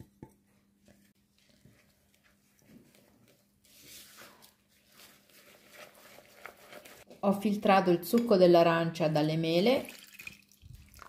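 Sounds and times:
spatula stirring batter: 0.0 - 7.2.

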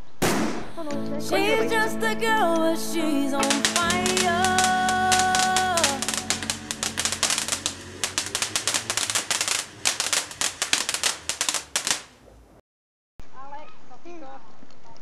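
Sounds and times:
rapid typewriter-like clicking: 3.4 - 12.1.

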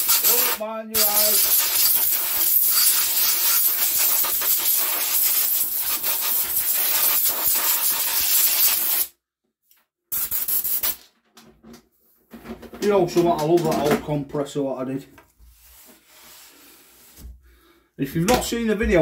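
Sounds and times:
compressed air blow gun hissing: 1.2 - 9.1.

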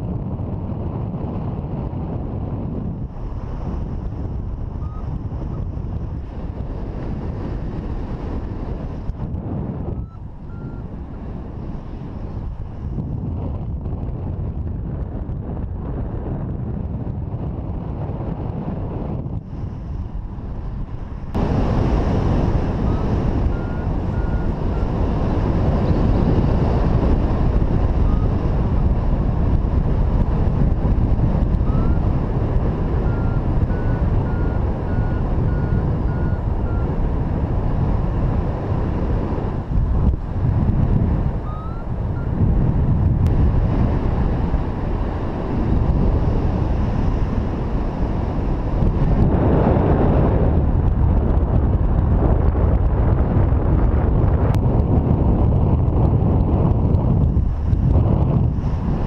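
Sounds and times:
wind rushing over microphone: 0.0 - 59.0
faint short beeps: 10.0 - 10.9, 22.8 - 24.9, 33.0 - 36.9, 41.5 - 42.4.

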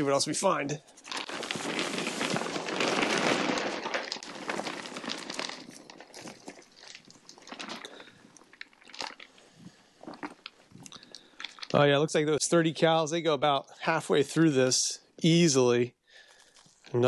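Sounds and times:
rubber mulch pouring into plastic case: 1.1 - 9.2.

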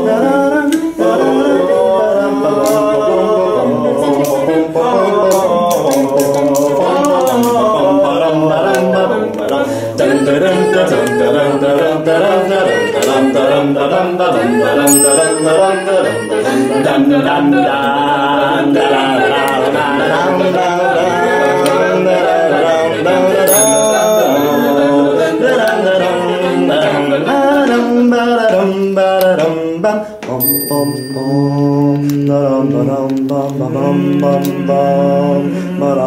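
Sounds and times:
a cappella voices chanting and singing: 0.0 - 36.0
bright bell ringing: 14.8 - 16.9, 23.4 - 25.2, 30.4 - 32.0.

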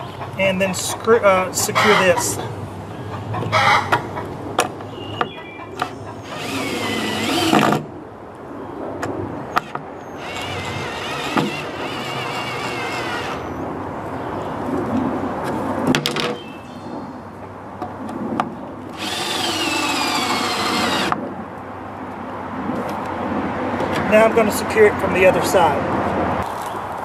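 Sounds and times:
knocks of drill and wood: 5.2 - 7.9, 9.6 - 13.4, 19.0 - 21.2
cordless drill driving screws: 6.2 - 7.8, 10.2 - 13.5, 19.0 - 21.1.

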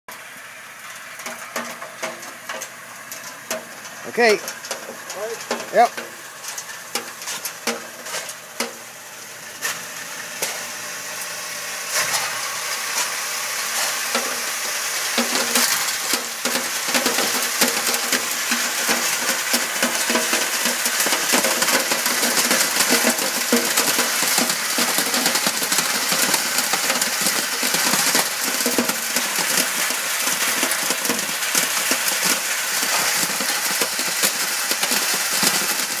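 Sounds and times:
scattered clicks and scrapes: 1.2 - 8.8
stones rattling on metal screen: 1.2 - 8.8, 15.1 - 36.0.

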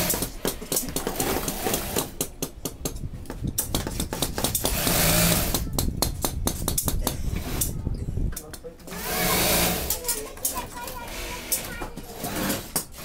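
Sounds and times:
industrial sewing machines running: 8.9 - 10.0.

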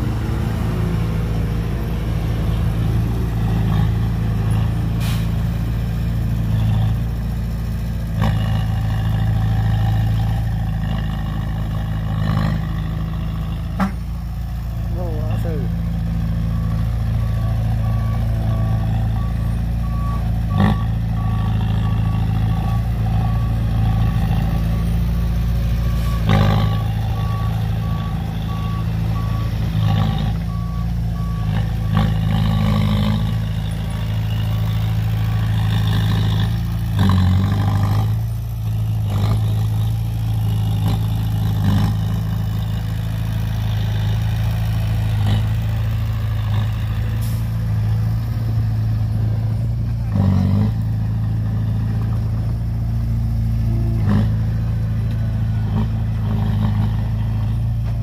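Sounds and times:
diesel engines running: 0.0 - 58.0
reversing alarm beeping: 15.0 - 25.1, 25.7 - 36.6.

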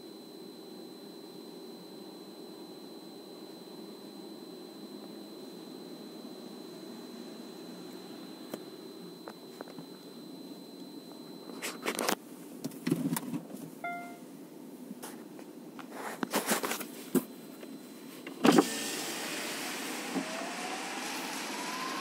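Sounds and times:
short beep: 13.8 - 14.2
distant siren: 18.4 - 22.0.

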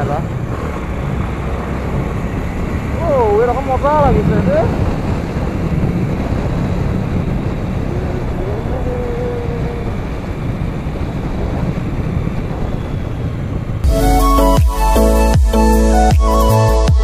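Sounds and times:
wind noise: 0.0 - 15.8
motorcycle engine: 0.0 - 17.0
electronic music: 13.8 - 17.0.

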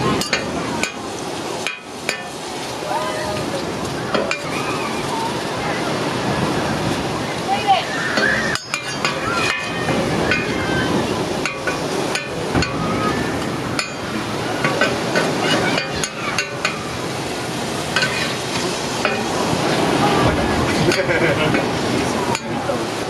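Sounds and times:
metal spatulas clacking and scraping: 8.2 - 10.5, 18.0 - 18.4.

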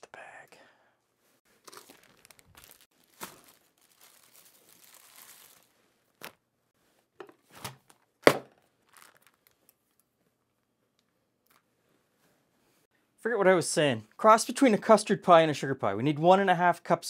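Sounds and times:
plastic bag crinkling: 1.5 - 6.4, 8.8 - 10.0.

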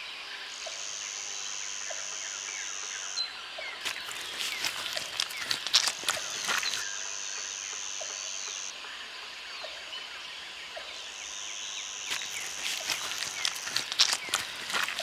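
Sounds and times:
high-pitched insect buzz: 11.3 - 15.0.

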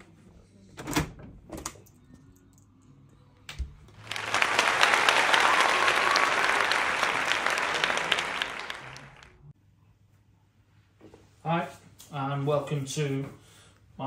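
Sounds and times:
applause: 3.9 - 9.5.

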